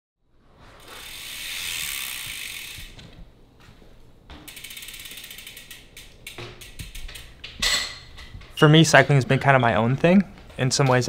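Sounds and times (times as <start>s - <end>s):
bicycle hub ratchet ticking: 0.8s - 3.0s, 4.5s - 7.6s.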